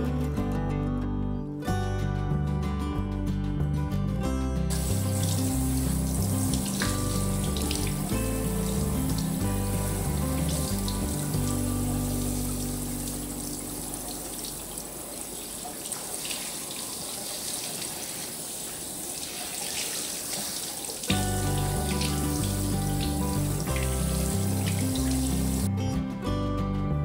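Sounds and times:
background music: 0.0s - 15.0s, 21.1s - 27.0s
kitchen tap running: 4.7s - 25.7s
water splashing in sink: 4.7s - 25.7s.

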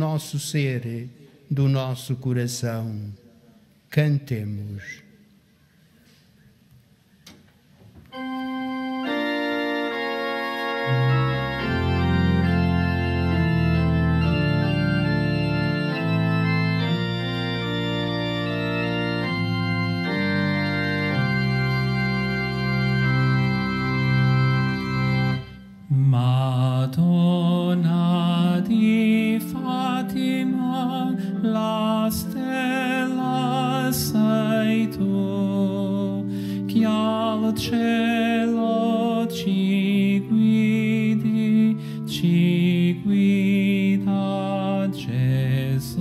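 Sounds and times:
deep organ bass notes: 8.1s - 46.0s
organ playing sustained chords: 8.1s - 46.0s
person singing with vibrato: 25.6s - 46.0s.

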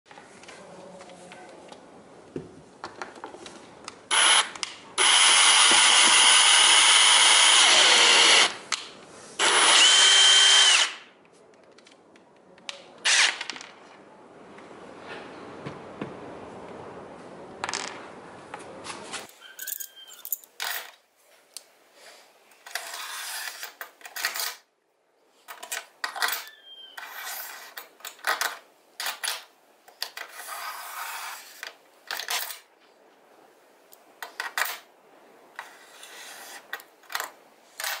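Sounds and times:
faint squeaks: 19.0s - 20.5s, 26.2s - 27.8s
metallic hinge clinks: 19.4s - 20.6s.

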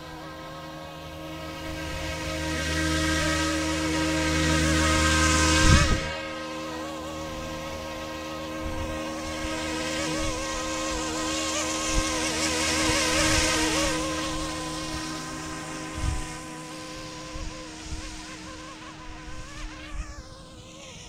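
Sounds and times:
rc helicopter buzzing whine: 0.0s - 21.0s.

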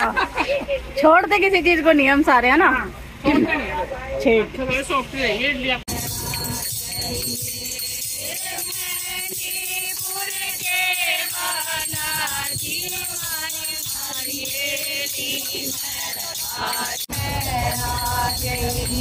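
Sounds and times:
hand cymbals keeping time: 5.9s - 19.0s
women singing together: 5.9s - 19.0s.

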